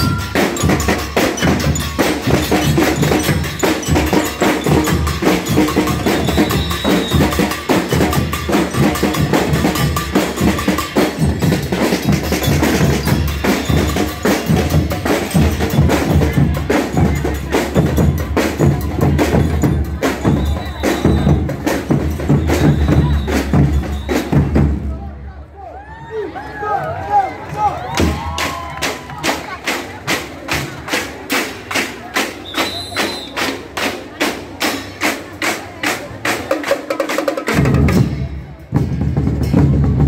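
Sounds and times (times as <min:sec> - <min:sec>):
cymbals: 0:00.0 - 0:24.8
snare drums: 0:00.0 - 0:24.9, 0:27.9 - 0:40.0
bass drums: 0:00.0 - 0:25.0.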